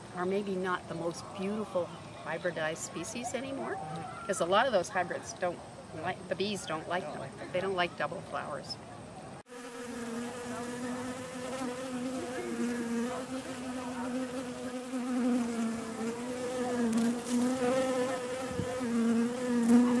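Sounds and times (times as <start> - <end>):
bee buzzing in flight: 9.5 - 20.0.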